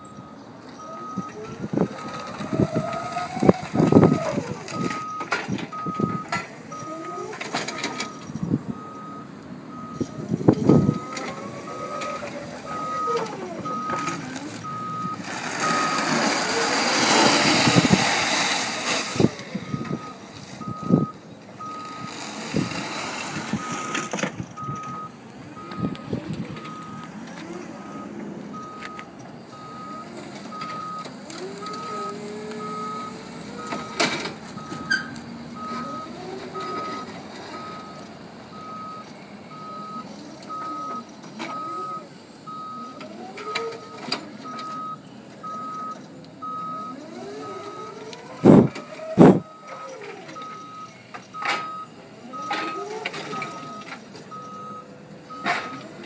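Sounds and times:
forklift warning beeper: 0.0s - 56.0s
electric motors whining: 0.8s - 38.0s, 40.0s - 44.9s, 45.5s - 56.0s
forks and pallet clunking: 48.1s - 54.3s.

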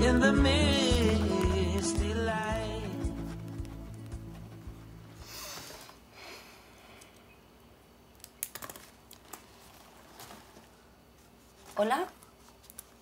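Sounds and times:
song: 0.0s - 4.5s.

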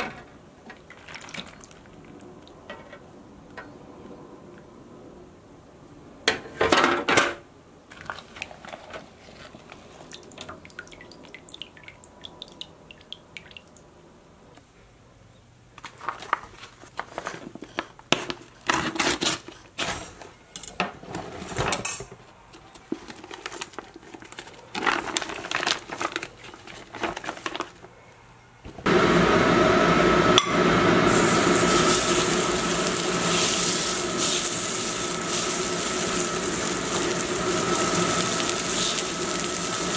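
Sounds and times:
plastic bag rustling: 15.8s - 20.3s, 22.7s - 27.9s, 31.1s - 39.9s
steak sizzling in skillet: 30.9s - 39.9s.

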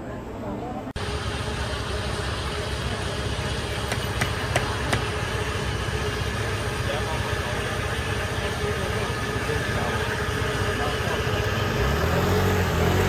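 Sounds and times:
steady hum: 0.0s - 13.0s
scooter and car engines: 0.9s - 13.0s
people's voices: 2.8s - 13.0s.

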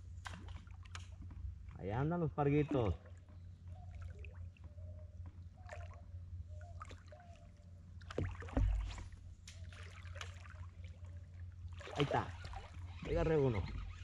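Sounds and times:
boat engine low rumble: 0.0s - 14.0s
water noise: 2.6s - 14.0s
dull thump: 8.2s - 9.1s.

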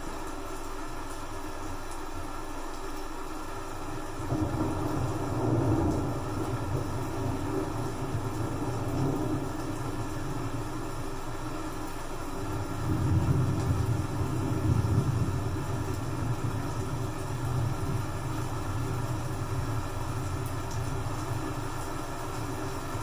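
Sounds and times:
rain hissing: 0.0s - 23.0s
thunder rumbling: 4.1s - 11.4s, 12.4s - 21.8s.

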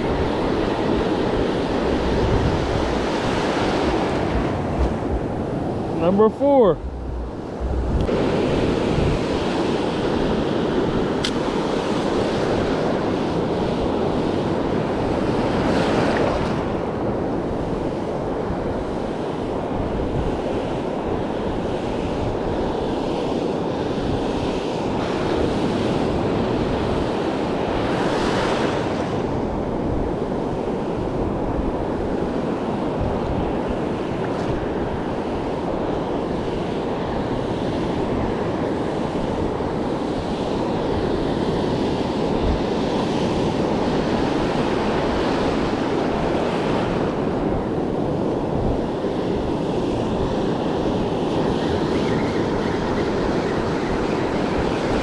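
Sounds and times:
ocean surf breaking: 0.0s - 13.5s.

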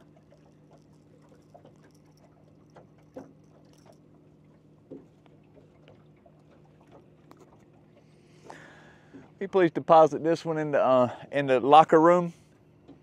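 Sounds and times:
fishing tackle clicks and rustles: 0.0s - 7.8s.

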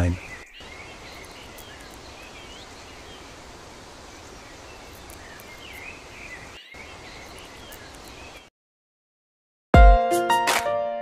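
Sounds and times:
steady hiss: 0.0s - 8.4s
small birds chirping: 0.0s - 8.5s.

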